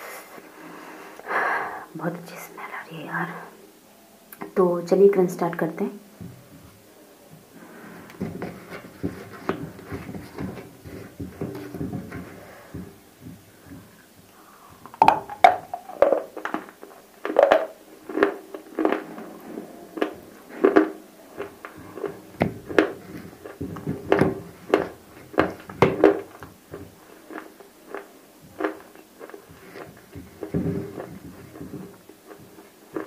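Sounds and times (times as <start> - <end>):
crunching and chewing clay: 16.3 - 19.3, 20.0 - 33.0.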